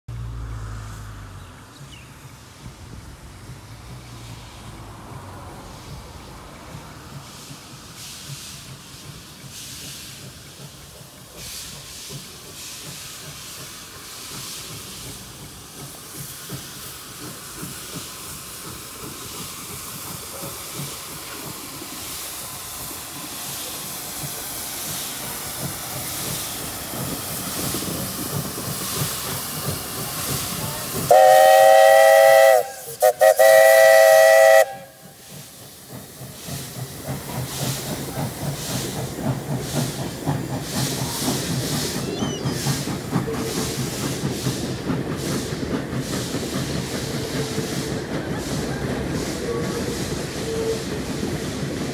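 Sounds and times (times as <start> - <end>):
steam locomotive exhaust and hiss: 0.1 - 51.9
steam whistle blasts: 31.1 - 35.2, 49.5 - 51.0.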